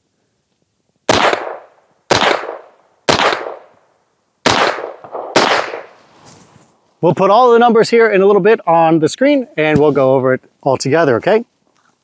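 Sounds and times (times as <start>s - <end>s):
gunshots: 1.1s - 3.7s, 4.4s - 6.0s.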